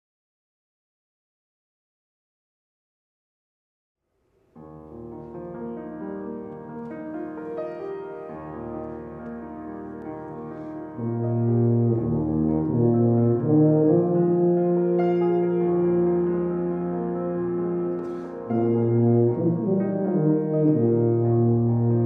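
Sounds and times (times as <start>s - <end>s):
grand piano chords: 4.3s - 22.0s
tuba low held notes: 7.8s - 22.0s.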